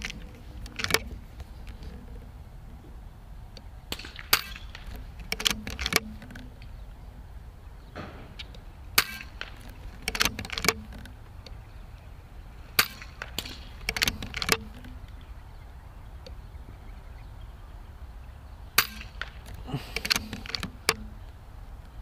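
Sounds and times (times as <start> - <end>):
air rifle shots: 3.9 - 6.2, 8.0 - 10.8, 12.7 - 14.9, 18.8 - 21.1.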